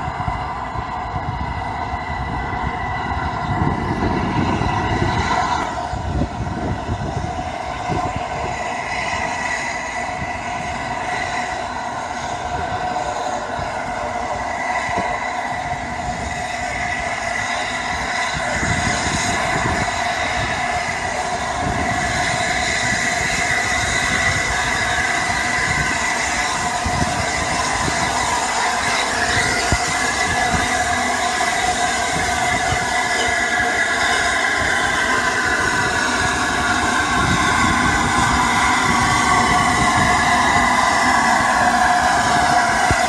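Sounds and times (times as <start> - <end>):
train running gear rumble: 0.0 - 43.0
train wheels squealing: 0.0 - 43.0.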